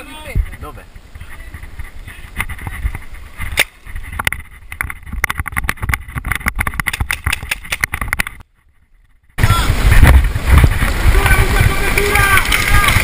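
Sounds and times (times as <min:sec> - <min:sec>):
wind rumble: 0:00.0 - 0:13.0
camera handling noise: 0:03.4 - 0:08.4
gear clicking and knocking: 0:03.6 - 0:08.4, 0:10.5 - 0:13.0.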